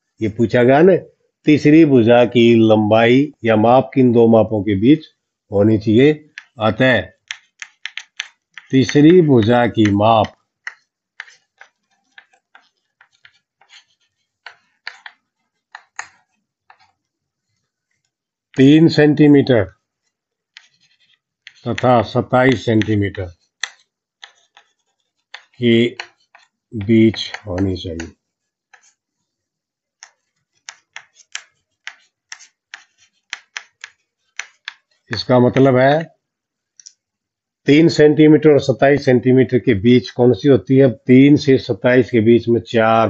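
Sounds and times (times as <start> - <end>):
chalk tapping and scratching on board: 6.2 - 18.8, 19.7 - 29.3, 30.0 - 35.8.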